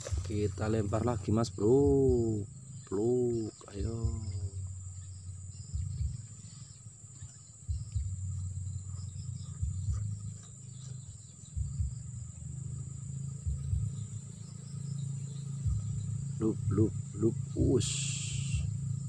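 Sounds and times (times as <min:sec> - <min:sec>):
insects droning: 0:00.0 - 0:19.0
low rumble: 0:00.0 - 0:19.0.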